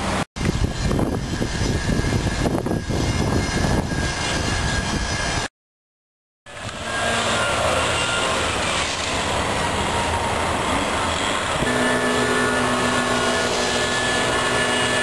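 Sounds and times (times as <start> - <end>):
street noise rumble: 6.5 - 15.0.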